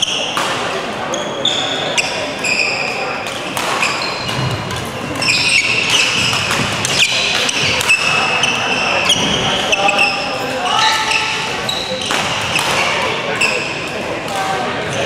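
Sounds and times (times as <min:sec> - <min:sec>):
sports shoes squeaking: 0:01.1 - 0:13.9
racket striking shuttlecock: 0:03.3 - 0:08.1.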